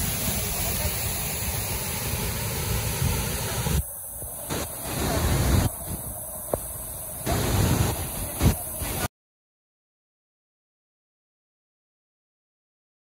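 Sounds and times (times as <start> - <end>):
waterfall rushing: 0.0 - 9.1.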